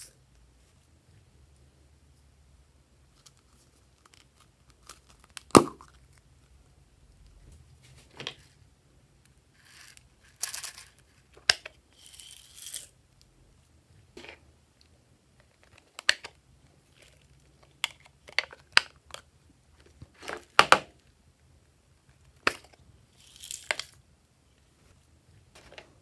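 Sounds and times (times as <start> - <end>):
plastic containers being handled: 25.5 - 26.0.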